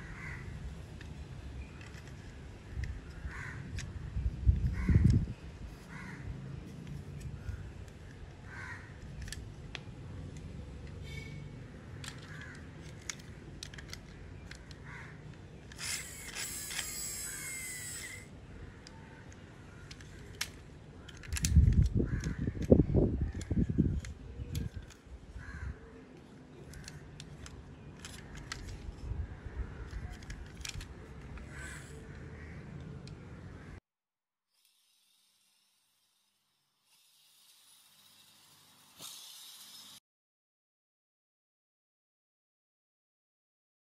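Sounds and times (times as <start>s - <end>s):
plastic toy parts clicking: 0.9s - 5.9s, 6.6s - 8.4s, 9.0s - 11.0s, 11.9s - 25.4s, 26.1s - 33.2s.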